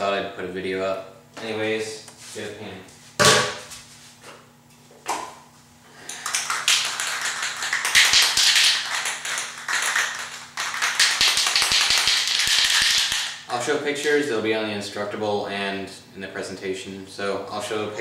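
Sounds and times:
spray can ball rattling: 6.1s - 13.4s.

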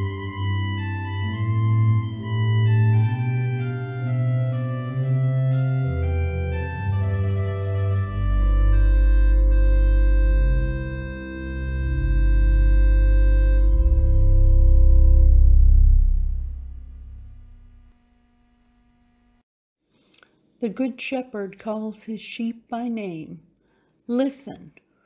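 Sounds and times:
deep organ pedal bass note: 0.0s - 17.9s
pipe organ chords: 0.0s - 17.9s.

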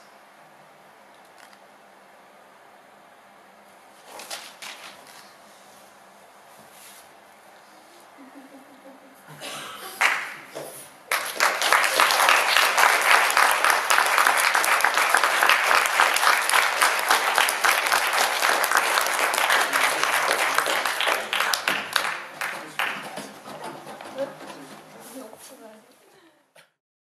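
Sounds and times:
audience applause: 10.0s - 25.0s.

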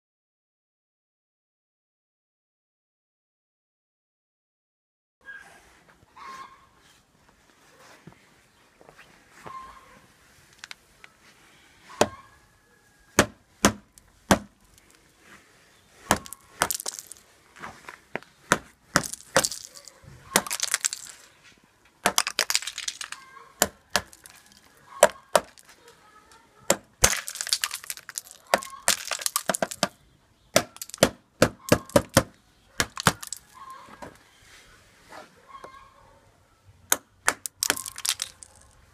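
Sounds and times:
ice crunching and shattering: 16.0s - 17.3s, 18.6s - 21.3s, 22.0s - 25.7s, 27.0s - 29.9s, 30.6s - 31.1s, 32.8s - 33.6s, 37.4s - 38.8s
pliers cracking and clinking on ice: 32.8s - 33.5s, 37.5s - 38.6s.

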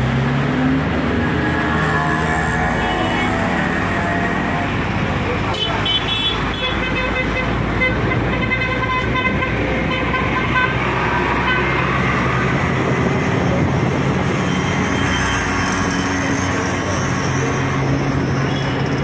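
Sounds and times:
engine and road noise: 0.0s - 19.0s
vehicle horns tooting: 5.5s - 10.8s.

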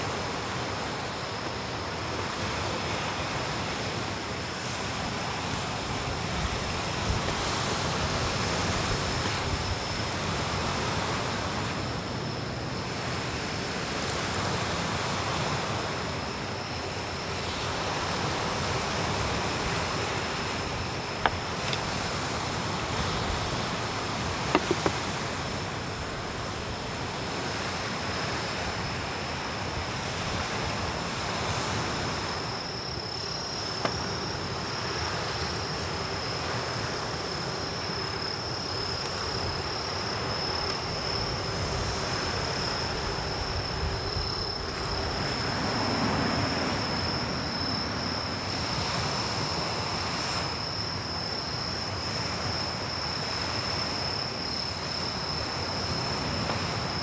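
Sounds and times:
insects trilling: 0.0s - 57.0s
surf and wind rushing: 0.0s - 57.0s.

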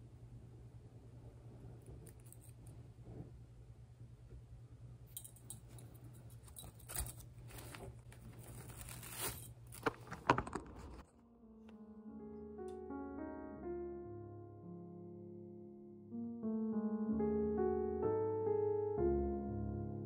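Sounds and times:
steady low hum: 0.0s - 9.9s
metal rings clinking: 5.1s - 7.2s
fabric pouch rustling: 6.5s - 11.0s
piano music: 11.1s - 20.0s.

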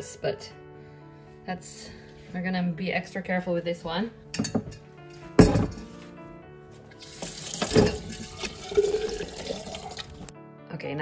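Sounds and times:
quiet background music: 0.0s - 11.0s
tap water running into sink: 6.9s - 10.3s.

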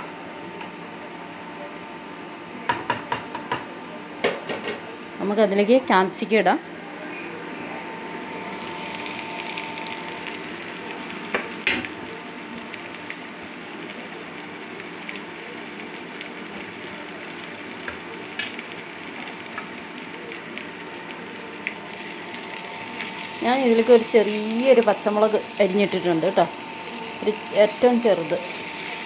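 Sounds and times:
vegetables sizzling in a pan: 8.4s - 29.0s.

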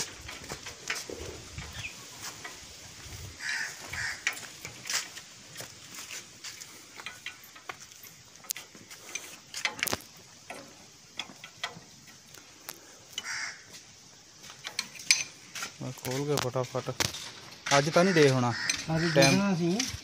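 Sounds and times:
spanner clicking on metal nuts: 6.9s - 13.3s, 14.4s - 20.0s.

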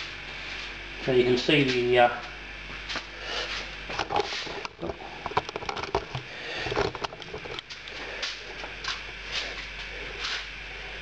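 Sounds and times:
camera handling clicks and rustling: 4.0s - 7.7s.

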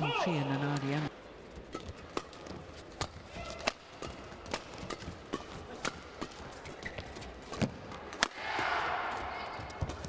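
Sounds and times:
rackets striking shuttlecock: 1.6s - 8.6s.

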